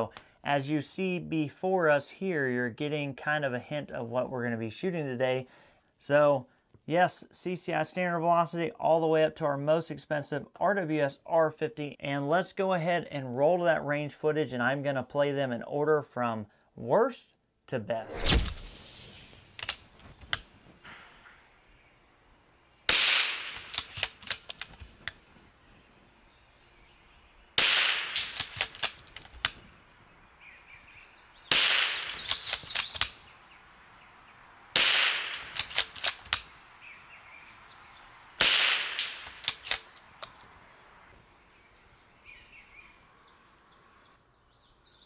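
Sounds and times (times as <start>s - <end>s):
rifle shots: 22.9s - 24.5s, 27.6s - 29.0s, 31.5s - 33.2s, 34.8s - 36.3s, 38.4s - 39.9s
rifle bolt metallic clicks: 23.5s - 25.2s, 28.2s - 29.6s, 32.0s - 33.2s, 35.3s - 36.5s, 39.0s - 40.5s.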